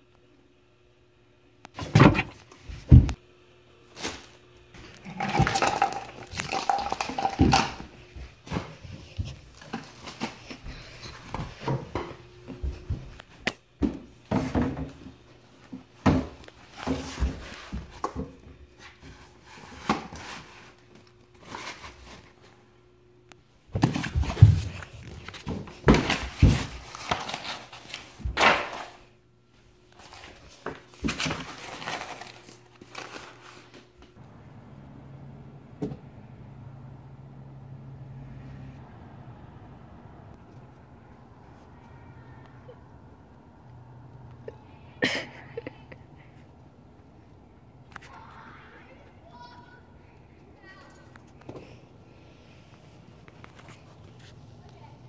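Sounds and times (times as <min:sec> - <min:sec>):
objects knocking and thudding: 0:01.8 - 0:03.2, 0:04.8 - 0:20.5, 0:23.7 - 0:27.4.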